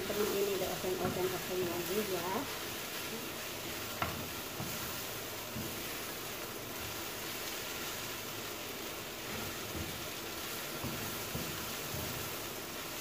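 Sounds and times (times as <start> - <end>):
food sizzling in a frying pan: 0.0 - 13.0
spatula scraping a pan: 9.2 - 12.5.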